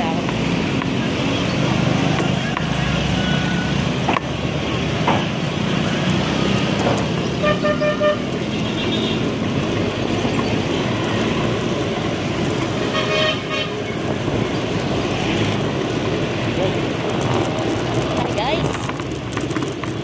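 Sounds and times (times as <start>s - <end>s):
wind and road noise: 0.0s - 20.0s
vehicle horn short blasts: 7.4s - 8.2s.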